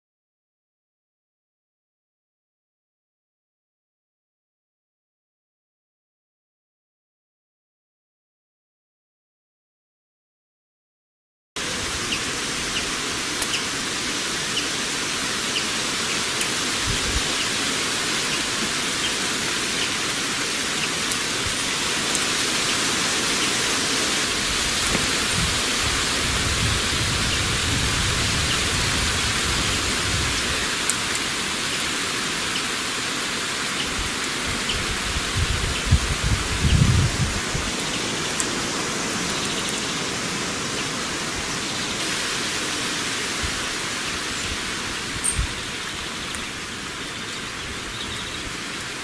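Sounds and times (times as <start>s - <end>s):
steady hiss: 11.6s - 49.0s.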